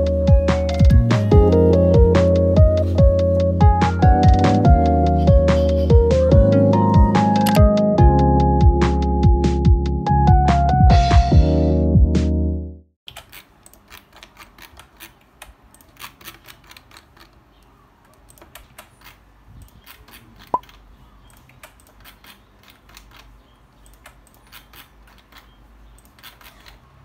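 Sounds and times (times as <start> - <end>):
keyboard typing: 0.0 - 7.9.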